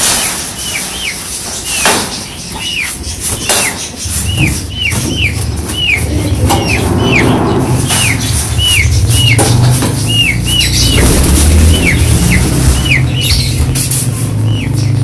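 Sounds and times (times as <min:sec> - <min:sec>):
small bird chirping: 0:00.5 - 0:15.0
loud low drone: 0:04.0 - 0:15.0
sharp knocks: 0:07.6 - 0:10.2.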